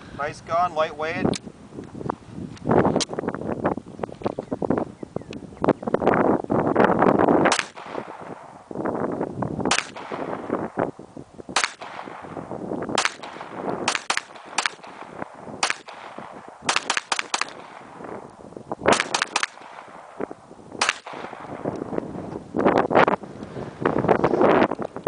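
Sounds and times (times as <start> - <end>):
pistol gunshots: 7.4 - 8.5, 9.7 - 10.8, 11.5 - 18.2, 18.9 - 21.7.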